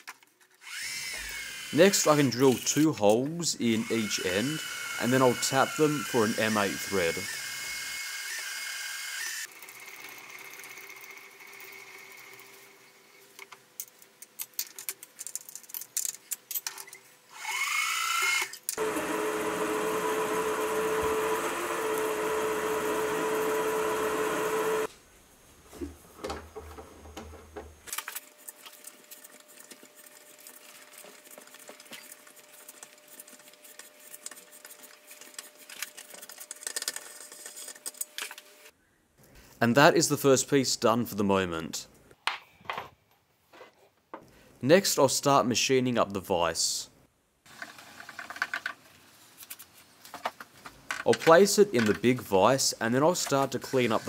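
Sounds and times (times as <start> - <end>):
milling machine spindle whine: 3.8 - 9.3, 18.8 - 24.9.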